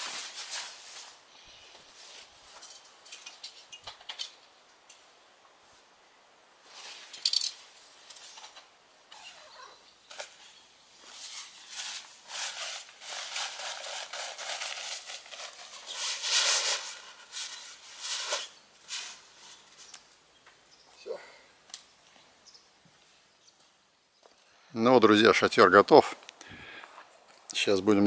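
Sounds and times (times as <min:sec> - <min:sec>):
tent fabric rustling: 0:00.0 - 0:03.0, 0:06.6 - 0:08.6, 0:09.2 - 0:20.1.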